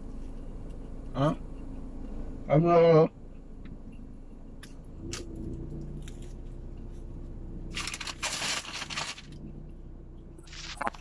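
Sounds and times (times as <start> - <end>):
low steady hum: 0.0 - 11.0
crusty bread tearing and crunching: 7.7 - 9.4.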